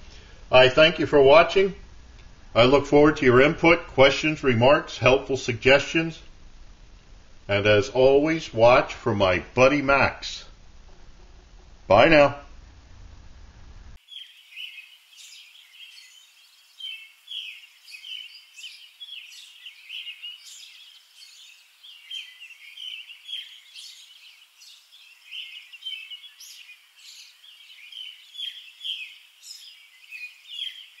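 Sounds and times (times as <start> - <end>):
small birds chirping chorus: 14.0 - 31.0.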